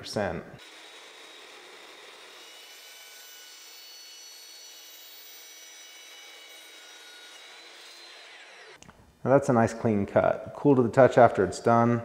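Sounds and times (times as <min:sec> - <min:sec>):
chop saw cutting steel: 0:00.6 - 0:08.8.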